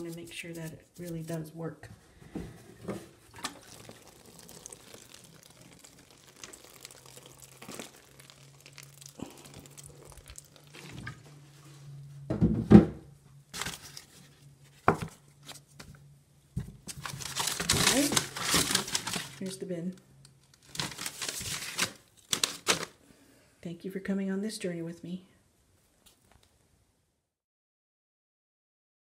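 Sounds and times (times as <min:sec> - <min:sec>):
hand crinkling damp cardboard: 0:00.0 - 0:01.6, 0:16.8 - 0:19.5.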